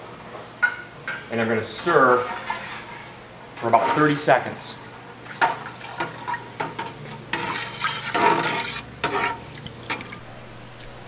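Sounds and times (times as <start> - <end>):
milk sloshing in a pot: 5.0 - 10.2.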